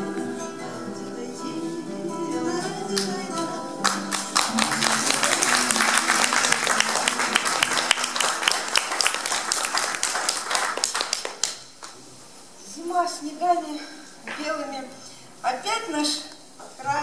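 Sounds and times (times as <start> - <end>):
audience applause: 3.8 - 11.7.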